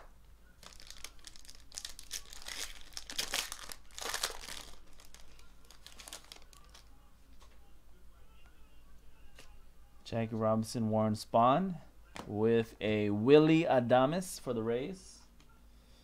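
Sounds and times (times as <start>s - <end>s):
foil wrapper tearing and crinkling: 0.6s - 6.9s.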